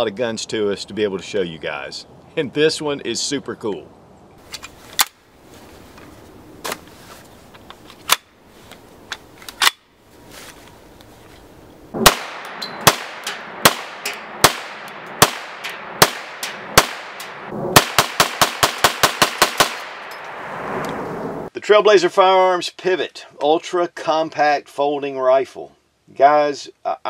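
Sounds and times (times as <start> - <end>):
carbine gunshots: 12.0 - 20.4.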